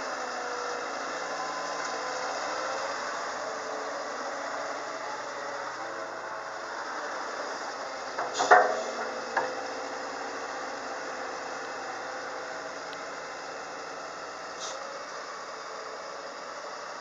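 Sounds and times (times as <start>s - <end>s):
excavator diesel engine running: 0.0s - 17.0s
loud metallic clank: 8.2s - 9.6s.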